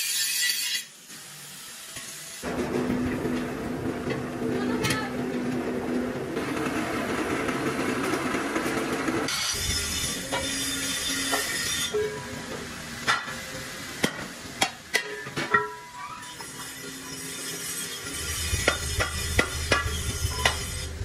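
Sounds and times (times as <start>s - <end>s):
machine hum with hiss: 9.3s - 15.4s.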